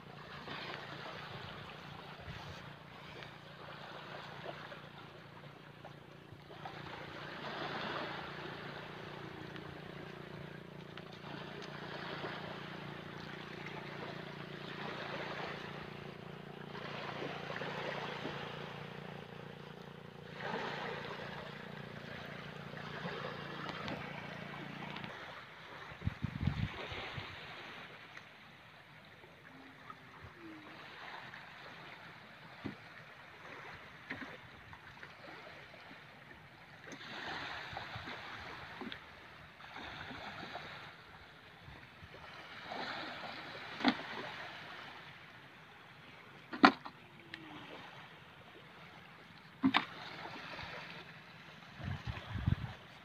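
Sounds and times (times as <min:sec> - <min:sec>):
low engine hum: 0:00.0 - 0:53.0
small waves washing ashore: 0:00.0 - 0:53.0
wind on microphone: 0:25.9 - 0:27.4, 0:51.7 - 0:53.0.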